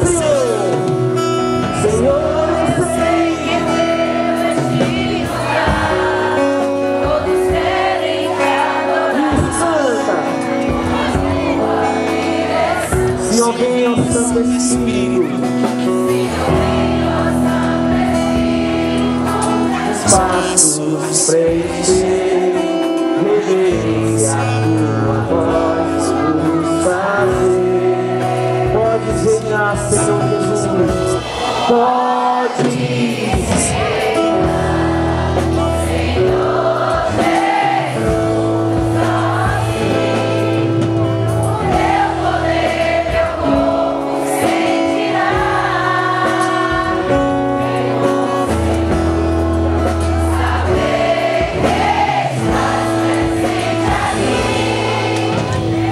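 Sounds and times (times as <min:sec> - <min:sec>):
band accompaniment: 0:00.0 - 0:55.9
worship song singing: 0:00.0 - 0:55.9
held bass notes: 0:33.4 - 0:55.9.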